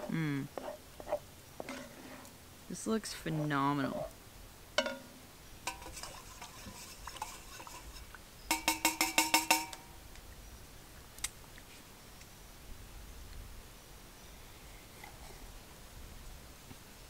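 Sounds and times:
spoon stirring in metal cup: 0:05.7 - 0:09.7
spoon knocking against cup: 0:08.5 - 0:09.8.

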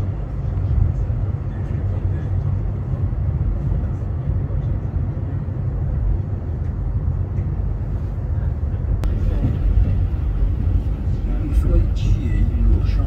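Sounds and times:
train rumbling inside carriage: 0:00.0 - 0:13.0.

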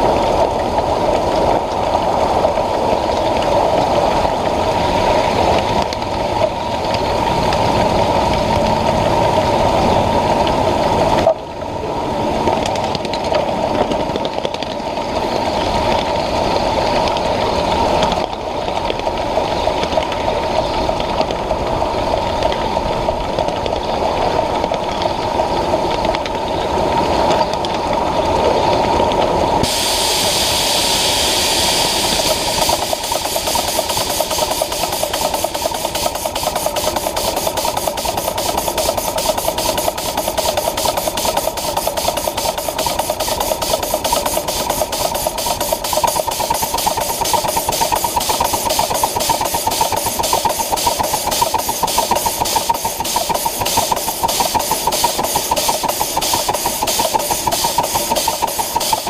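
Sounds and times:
locomotive exhaust chuffs: 0:29.5 - 0:59.0
steam hiss: 0:29.6 - 0:59.0.

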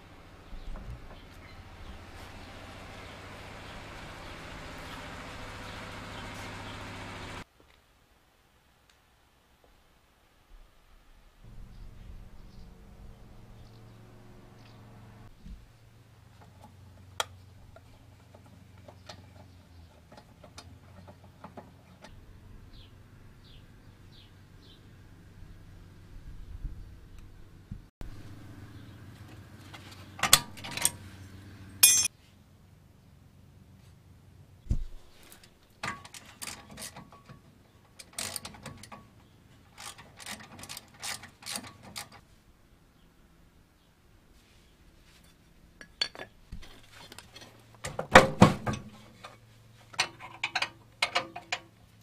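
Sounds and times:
tools clinking on brake parts: 0:31.8 - 0:32.1, 0:45.8 - 0:46.4.

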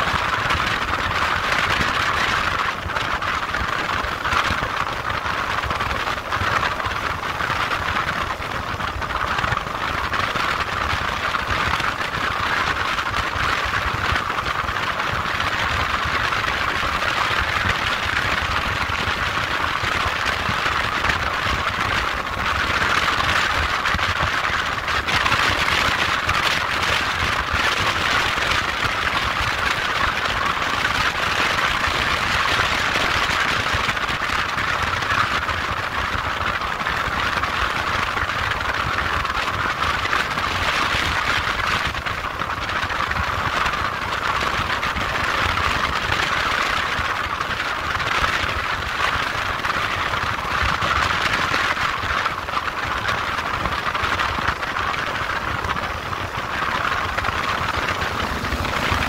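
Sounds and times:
constant rushing noise: 0:00.0 - 0:59.0
motorcycle engine rumble: 0:53.9 - 0:59.0.

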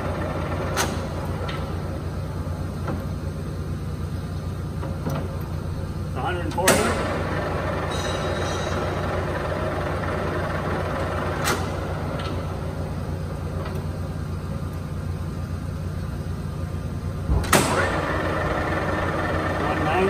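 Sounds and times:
lathe motor humming: 0:17.8 - 0:20.0.

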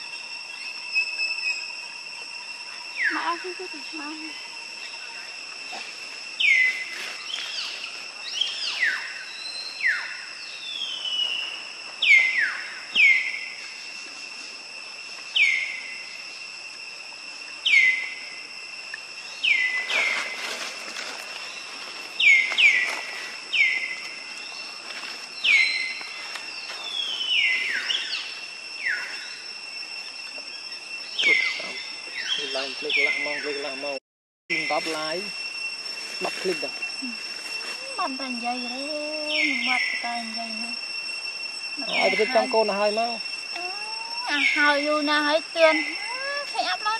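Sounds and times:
steady high-pitched drone: 0:00.0 - 0:46.9.

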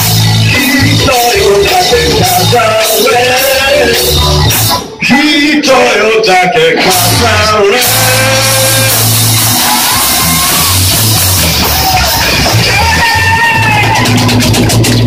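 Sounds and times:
live rock band playing: 0:00.0 - 0:05.1, 0:06.8 - 0:15.0
man singing: 0:00.0 - 0:09.2.

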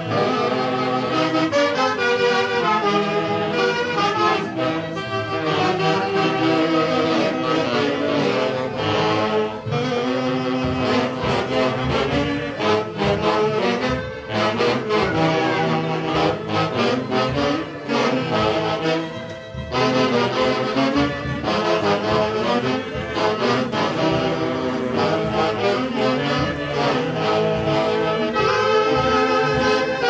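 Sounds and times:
drums: 0:00.0 - 0:30.0
saxophone band dance tune: 0:00.0 - 0:30.0.

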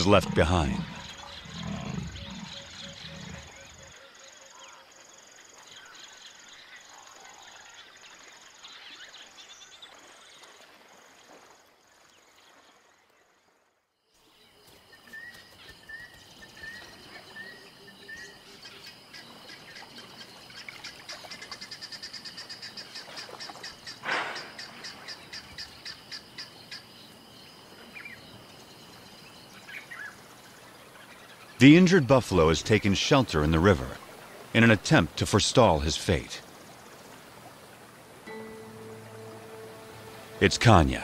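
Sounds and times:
wild birds calling: 0:00.0 - 0:09.4, 0:14.4 - 0:41.0
repeated bird notes: 0:38.3 - 0:41.0
steady high trill: 0:38.3 - 0:41.0.

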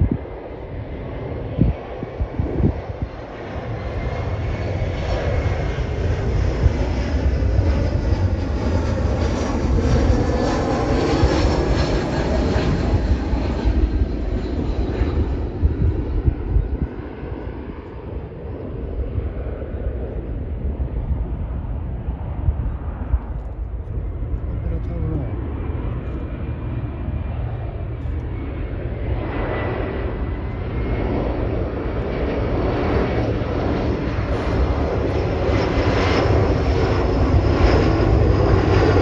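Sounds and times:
jet airliner taking off: 0:00.0 - 0:39.0.

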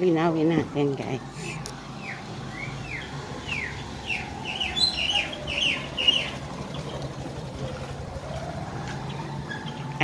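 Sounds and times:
bird chirping: 0:02.0 - 0:06.9.

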